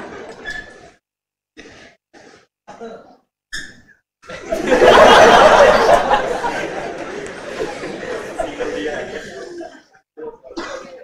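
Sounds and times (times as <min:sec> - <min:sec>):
students laughing loudly: 0:04.3 - 0:09.7.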